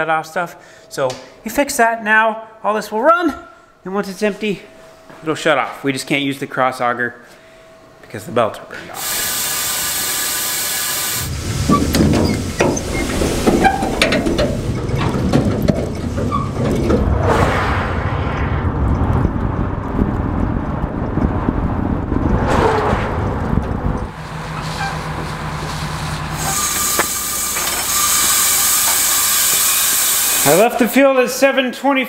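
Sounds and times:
truck engine and road rumble: 10.6s - 29.6s.

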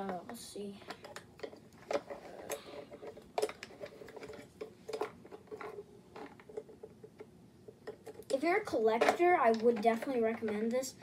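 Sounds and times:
plastic toy clicks and taps: 9.0s - 10.6s.

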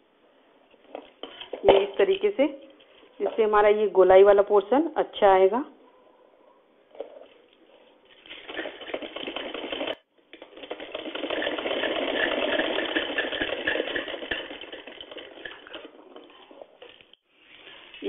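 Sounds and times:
sewing machine clattering: 8.2s - 16.3s.

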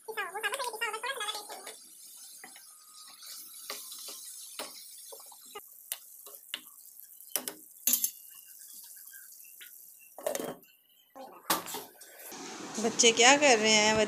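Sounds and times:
sauce sizzling and bubbling: 0.0s - 12.8s
spatula scraping and tapping pan: 1.3s - 10.8s.

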